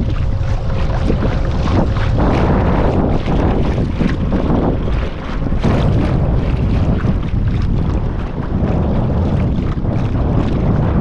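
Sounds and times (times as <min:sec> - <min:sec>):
wind gusting over microphone: 0:00.0 - 0:11.0.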